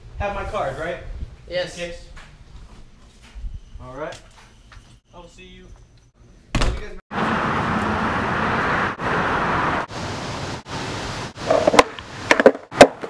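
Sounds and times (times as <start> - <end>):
rushing street noise: 7.1 - 12.8.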